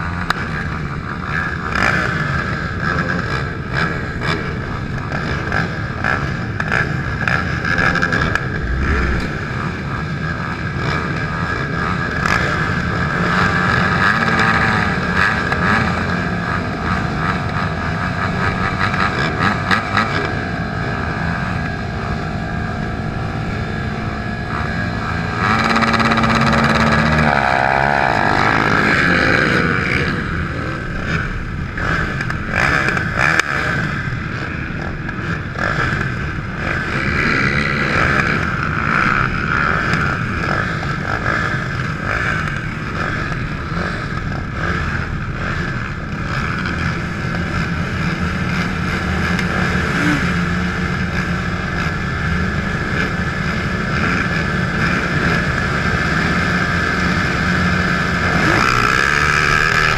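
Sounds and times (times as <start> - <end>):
other quad engines idling: 0.0 - 59.9
quad engine idling: 39.7 - 59.9.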